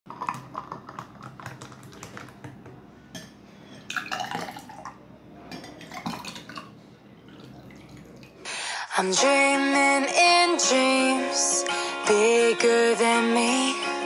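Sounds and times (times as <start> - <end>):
liquid pouring over ice: 3.9 - 4.9.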